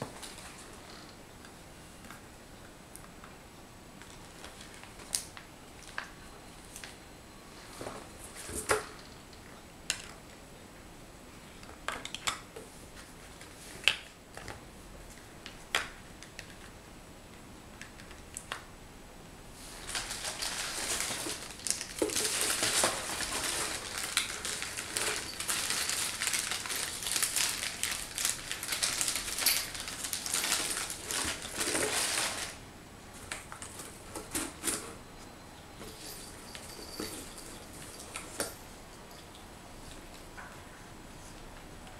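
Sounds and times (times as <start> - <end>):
packing material crinkling: 19.6 - 32.6.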